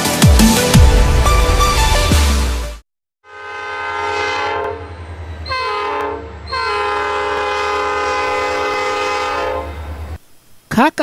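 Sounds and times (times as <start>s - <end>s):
locomotive air horn: 3.2s - 10.2s.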